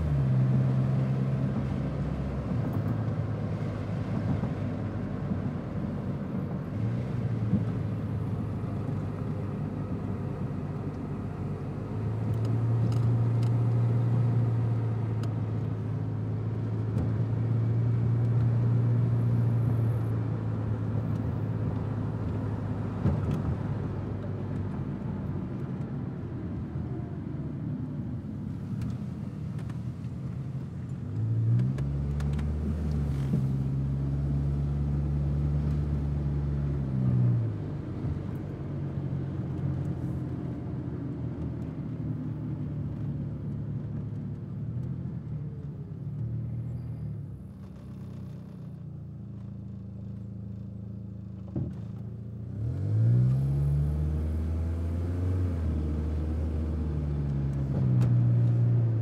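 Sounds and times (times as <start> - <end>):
car engine hum: 0.0 - 59.0
road and tyre noise: 0.0 - 59.0.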